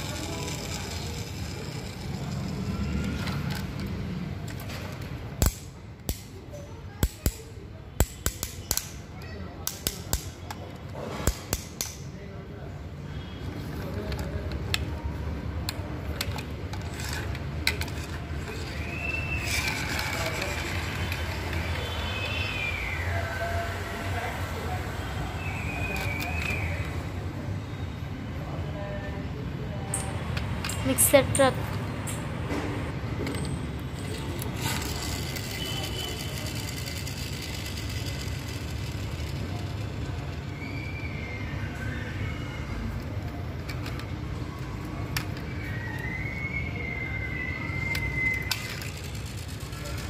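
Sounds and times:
plastic toy clicks and knocks: 0.0 - 12.2, 13.9 - 22.0, 25.6 - 27.0, 33.2 - 40.6, 43.0 - 46.1, 47.7 - 50.0
toy truck rolling on concrete: 0.0 - 27.4, 29.6 - 31.9, 32.9 - 50.0.

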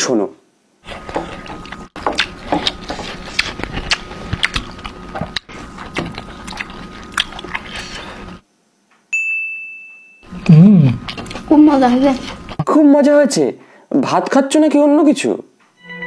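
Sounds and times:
close chewing and crunching: 0.8 - 8.4, 10.3 - 12.7.

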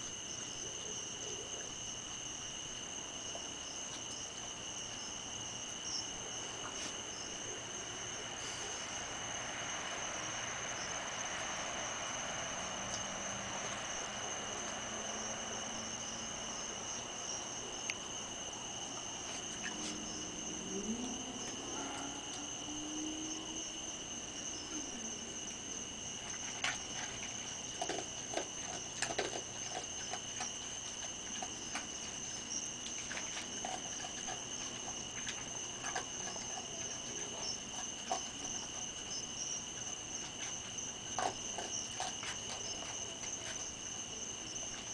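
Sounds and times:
crickets trilling: 0.0 - 44.9
raccoons feeding clicks and taps: 11.6 - 20.2, 25.5 - 44.9.

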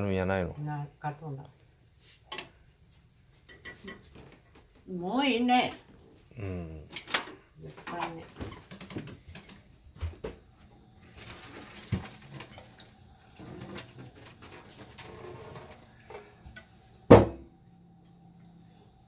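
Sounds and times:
low steady hum: 0.0 - 19.0
pots and utensils clinking: 3.4 - 4.4, 11.1 - 17.4
pot set down with a knock: 17.1 - 17.5.

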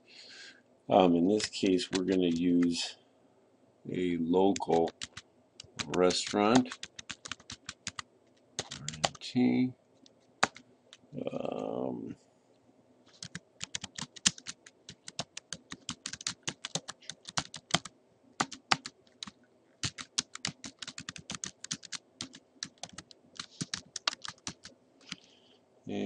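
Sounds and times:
keyboard typing: 1.3 - 2.8, 4.5 - 8.0, 8.6 - 9.2, 10.4 - 11.0, 13.1 - 25.2.

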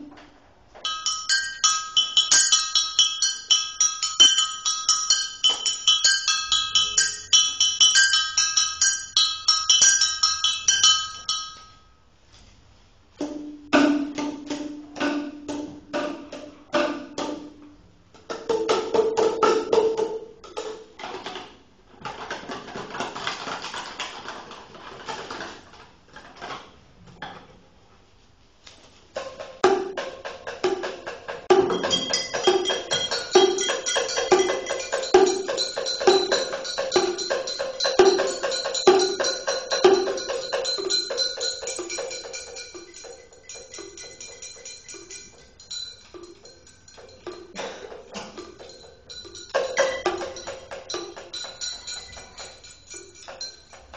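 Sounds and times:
percussion rattling: 0.0 - 12.0, 13.2 - 26.7, 29.1 - 53.9
bell-like chiming tones: 0.8 - 12.0, 31.7 - 47.6, 48.3 - 53.9.

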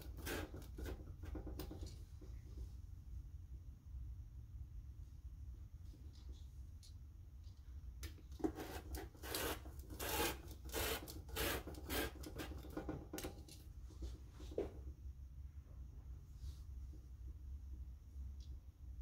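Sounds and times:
rotary cutter scraping paper: 0.0 - 1.6, 8.4 - 13.1.

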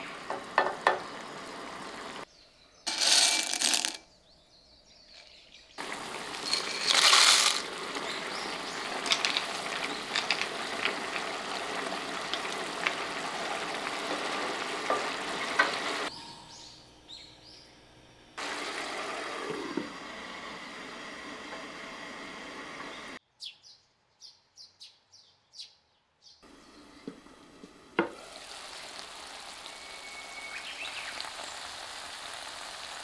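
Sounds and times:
dry pasta pouring rush: 2.9 - 4.0, 5.8 - 16.1
tomato sauce simmering: 5.8 - 6.8, 7.6 - 16.1.

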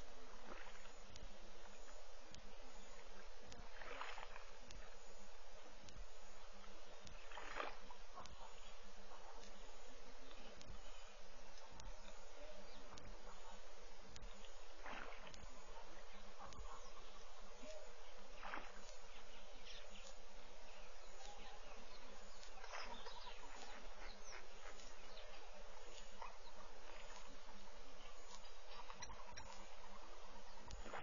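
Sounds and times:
bird chirps: 6.3 - 31.0.

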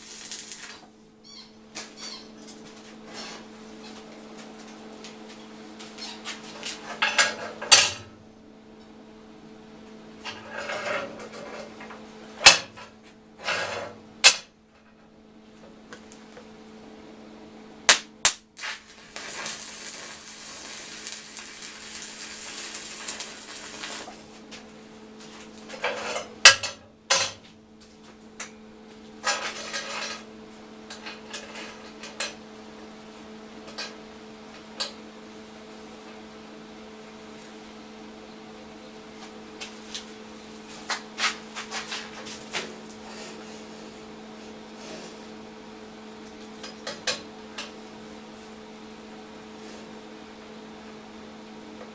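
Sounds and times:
welding arc crackling and hissing: 0.0 - 0.9, 17.9 - 26.6
steady hum: 0.0 - 51.9.

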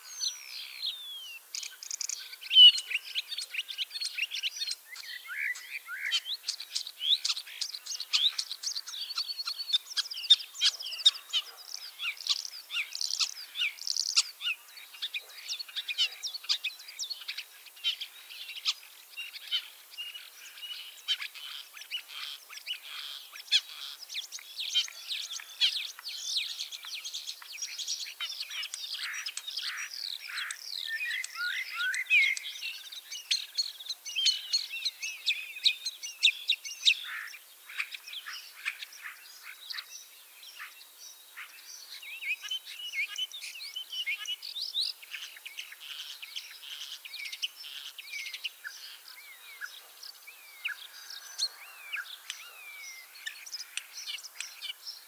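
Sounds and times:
starling singing: 0.0 - 35.4.

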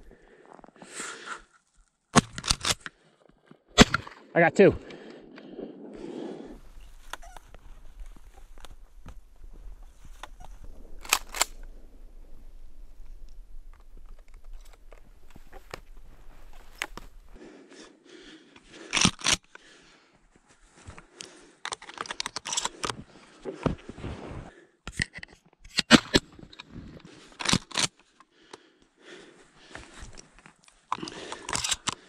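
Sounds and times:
footsteps in snow: 6.6 - 11.0, 14.7 - 17.4.

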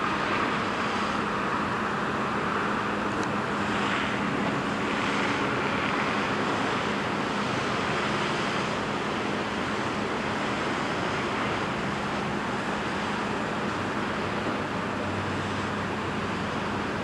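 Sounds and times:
distant road traffic: 0.0 - 17.0.

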